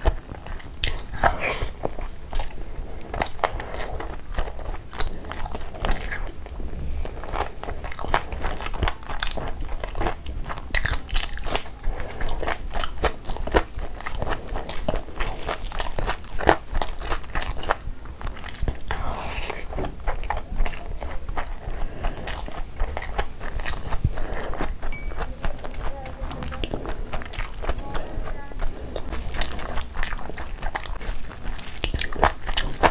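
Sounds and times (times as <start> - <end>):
chewing and wet mouth smacks: 7.0 - 32.9.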